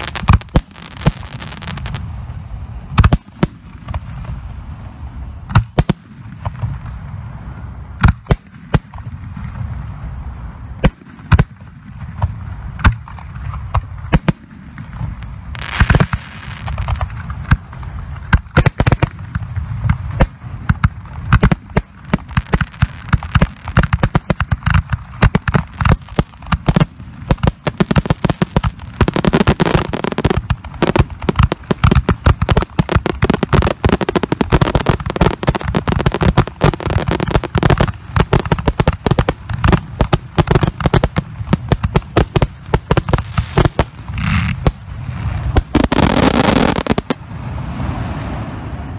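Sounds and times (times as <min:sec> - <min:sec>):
firework shells bursting: 0:20.1 - 0:47.2.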